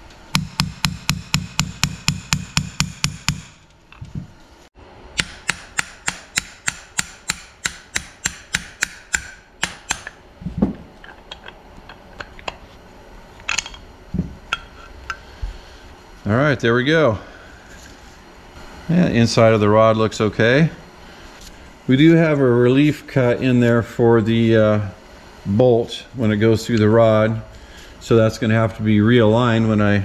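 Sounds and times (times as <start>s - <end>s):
hammer striking metal: 0.3s - 3.7s, 5.2s - 10.2s.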